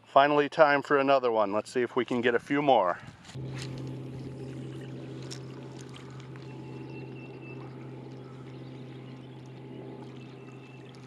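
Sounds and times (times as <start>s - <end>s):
steady low hum: 3.3s - 11.0s
small waves lapping: 3.5s - 11.0s.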